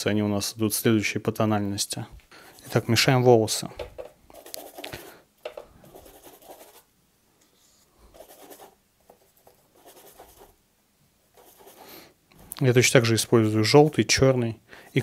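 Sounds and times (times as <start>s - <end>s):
paintbrush scratchy strokes: 4.3s - 5.1s, 5.8s - 6.9s, 7.6s - 10.6s, 11.3s - 12.0s, 12.7s - 14.2s.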